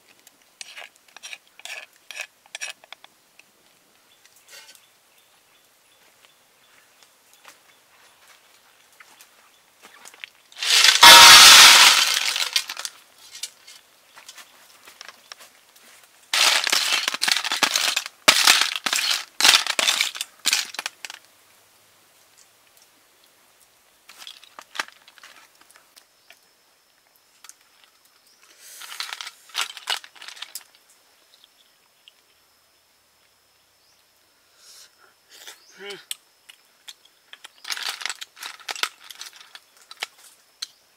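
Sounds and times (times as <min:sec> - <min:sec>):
slurping snails: 0:00.6 - 0:03.0.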